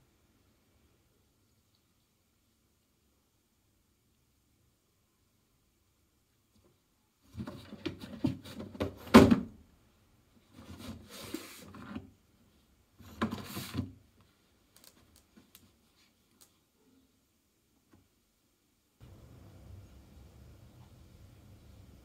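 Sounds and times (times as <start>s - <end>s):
box knocking and scraping on tile: 7.3s - 9.3s.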